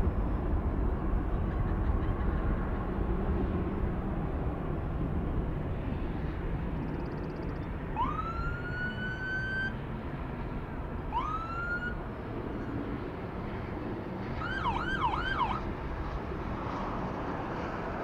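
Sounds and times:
emergency vehicle siren: 0:07.3 - 0:09.8, 0:11.1 - 0:12.0, 0:14.4 - 0:15.7.

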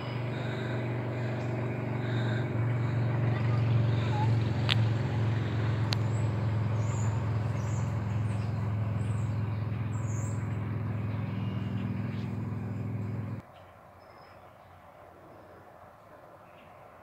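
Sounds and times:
vehicle engine running: 0:00.0 - 0:13.4
bird chirps: 0:05.9 - 0:14.8.

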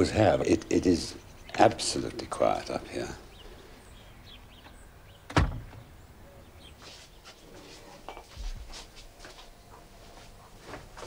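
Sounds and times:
wooden door banging shut: 0:05.3 - 0:05.9.

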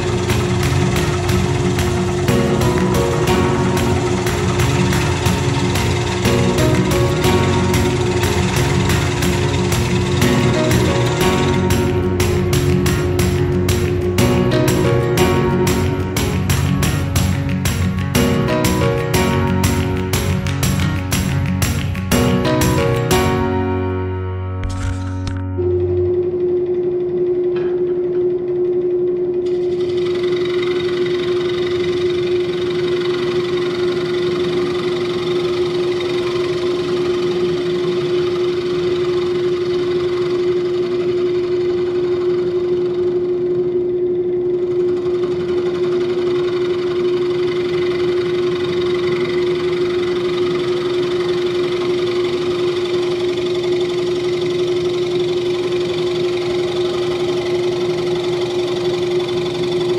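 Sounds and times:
gouge scraping spinning wood: 0:00.0 - 0:14.7
wood lathe motor hum: 0:00.0 - 0:22.8, 0:24.6 - 0:59.9.

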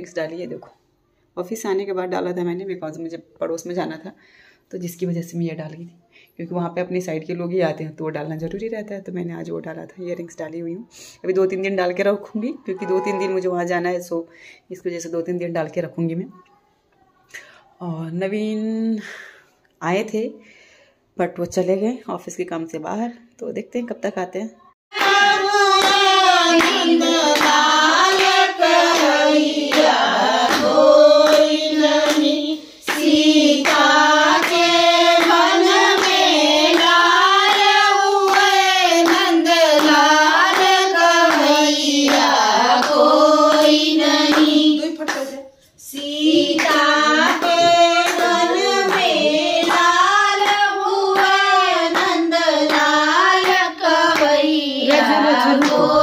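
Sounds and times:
hand claps: 0:24.9 - 0:32.3, 0:32.9 - 0:41.5, 0:42.1 - 0:45.2, 0:46.5 - 0:53.6, 0:54.2 - 0:56.0
women singing: 0:24.9 - 0:56.0.

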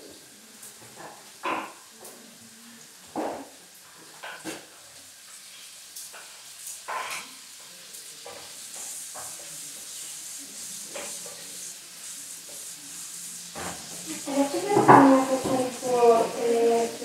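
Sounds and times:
food sizzling in a pan: 0:00.0 - 0:17.0
utensil scraping a pan: 0:12.4 - 0:17.0.

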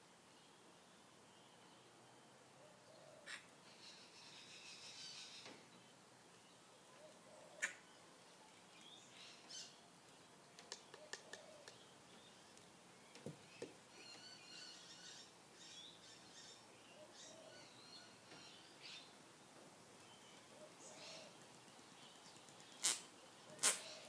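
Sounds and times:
faint high bird chirping: 0:10.7 - 0:19.2.

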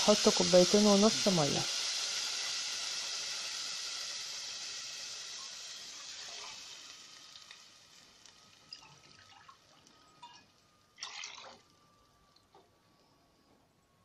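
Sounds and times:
rice and oil sizzling: 0:00.0 - 0:11.0
water splashing into pot: 0:08.7 - 0:10.4, 0:11.0 - 0:11.7.

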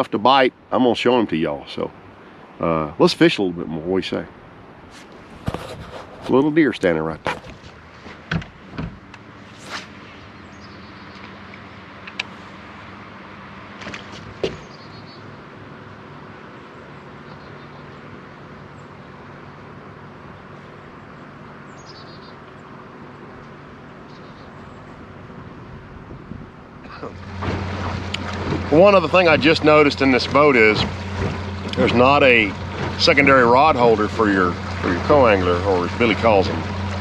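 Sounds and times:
steady low hum: 0:15.3 - 0:37.0.

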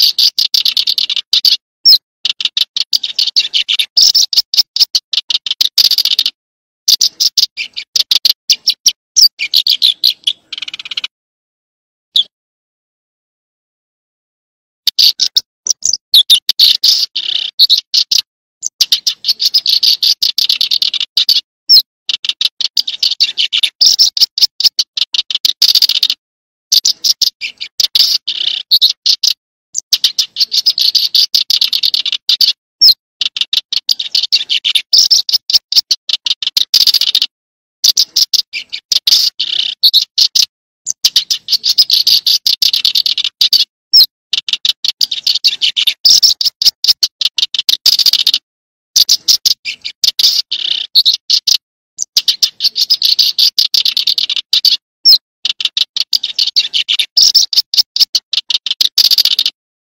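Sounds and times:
bird ticking trills: 0:00.0 - 0:11.1, 0:14.8 - 0:48.4, 0:49.0 - 0:59.6.

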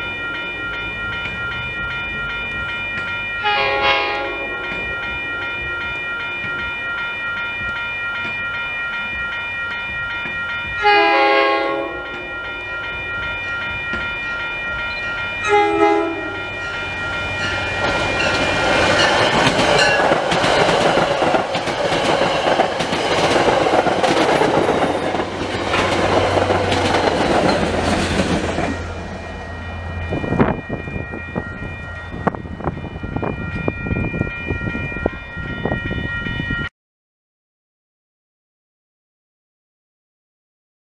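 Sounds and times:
crossing warning bells ringing: 0:00.0 - 0:36.7
train rumble and wheel clatter: 0:00.0 - 0:36.7
train horn blast: 0:03.4 - 0:04.8, 0:10.8 - 0:12.3, 0:15.4 - 0:16.6.

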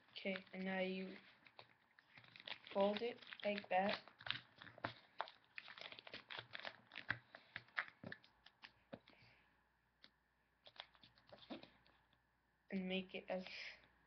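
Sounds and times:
paper being folded and creased: 0:00.0 - 0:09.1, 0:10.7 - 0:12.0.

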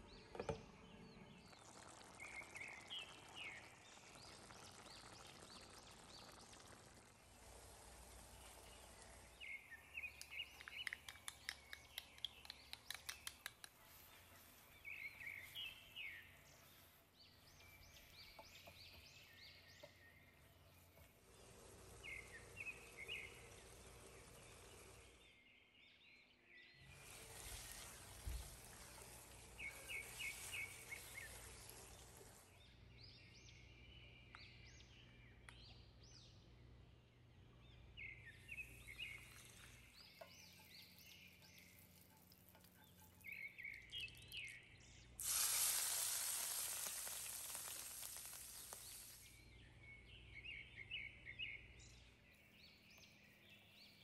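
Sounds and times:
steady low hiss: 0:00.0 - 0:12.8, 0:13.5 - 0:25.3, 0:26.8 - 0:34.3, 0:44.9 - 0:51.3
rapid ticks: 0:10.2 - 0:14.0.

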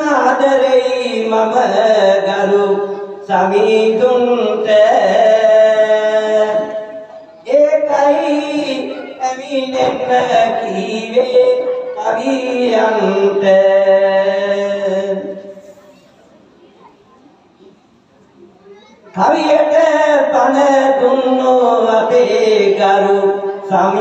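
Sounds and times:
man singing chant-like melody: 0:00.0 - 0:15.6, 0:19.1 - 0:24.0.

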